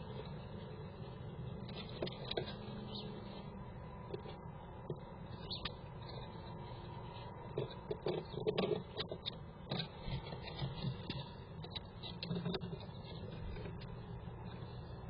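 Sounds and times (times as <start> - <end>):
background hum: 0.0 - 15.0
claws scratching on wood: 5.5 - 15.0.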